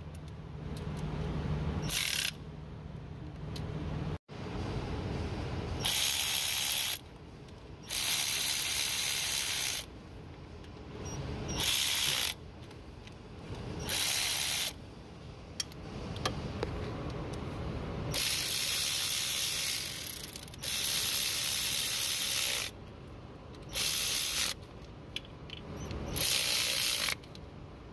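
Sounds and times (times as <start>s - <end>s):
cordless ratchet running: 1.8s - 2.4s, 5.8s - 7.0s, 7.8s - 9.9s, 11.5s - 12.4s, 13.8s - 14.8s, 18.1s - 22.8s, 23.6s - 24.7s, 25.8s - 27.4s.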